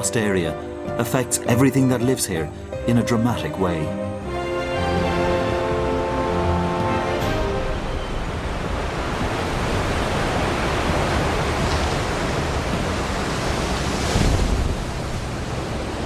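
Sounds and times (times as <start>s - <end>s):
floodwater rushing and churning: 4.3s - 16.0s.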